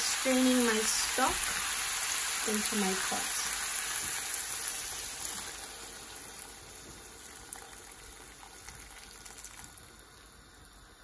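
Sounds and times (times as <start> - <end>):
liquid pouring and splashing: 7.2 - 10.0.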